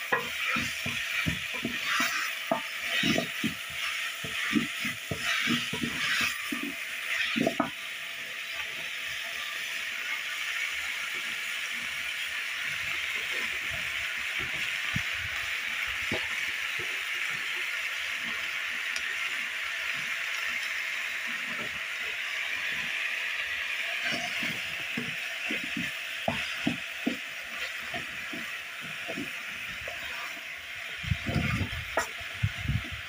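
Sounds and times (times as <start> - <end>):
wooden spoon scraping a pot: 0.0 - 7.8, 23.9 - 33.0
vegetables sizzling in a pot: 0.0 - 33.0.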